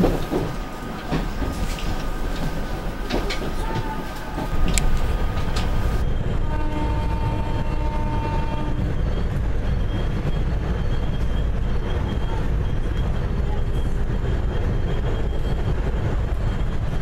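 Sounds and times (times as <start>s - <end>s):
train wheel clicks over track joints: 0.0s - 6.0s
low rumble of train: 0.0s - 17.0s.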